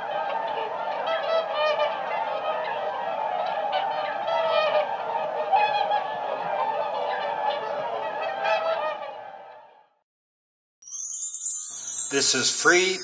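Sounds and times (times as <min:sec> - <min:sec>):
swans calling: 0:00.2 - 0:09.2.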